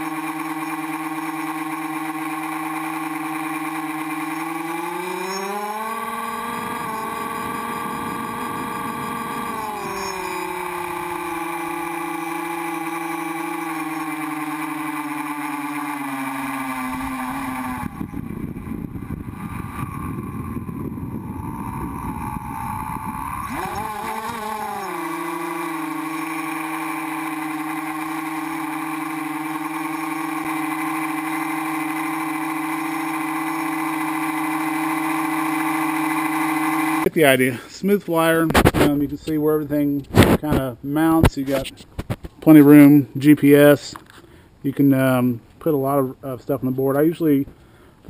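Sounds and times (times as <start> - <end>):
drone motors whining: 0.0 - 37.1
rough rushing noise: 1.6 - 37.1.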